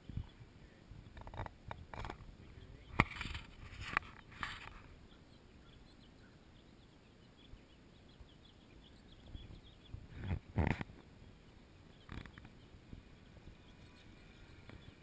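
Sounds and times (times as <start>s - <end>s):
faint outdoor background: 0.0s - 15.0s
rustling: 3.0s - 5.0s.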